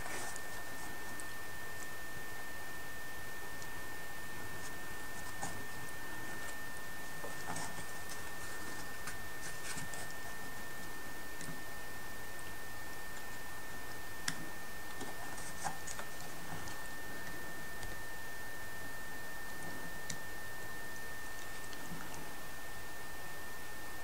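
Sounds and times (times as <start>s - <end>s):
fingers clicking and scratching wood: 14.2s - 18.0s.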